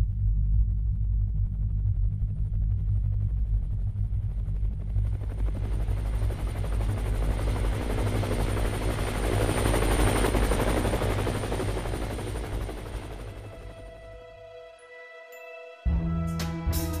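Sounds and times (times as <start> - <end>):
helicopter rotor beats: 1.3 - 14.3.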